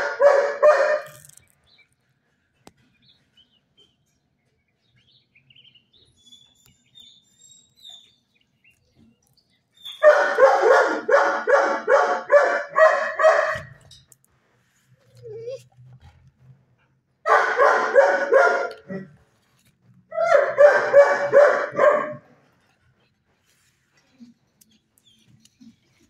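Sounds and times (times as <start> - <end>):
dog barking: 0.0 - 1.2, 10.0 - 13.8, 17.2 - 19.1, 20.2 - 22.3.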